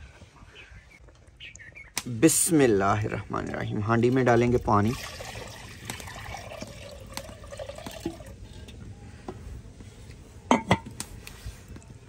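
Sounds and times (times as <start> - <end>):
water pouring into clay pot: 4.2 - 8.6.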